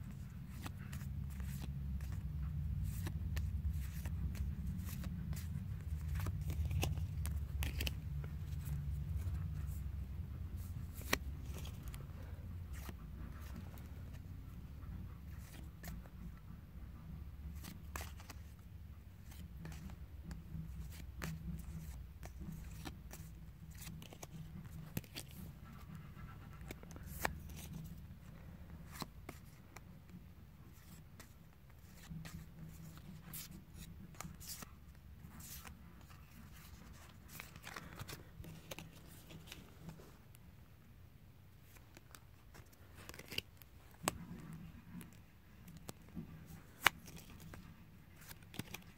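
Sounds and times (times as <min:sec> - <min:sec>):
faint steady low hum: 0:00.0 - 0:48.9
cards sliding over cards: 0:00.1 - 0:09.8, 0:10.6 - 0:14.3, 0:17.6 - 0:18.6, 0:19.2 - 0:29.9, 0:35.3 - 0:40.2, 0:41.7 - 0:48.9.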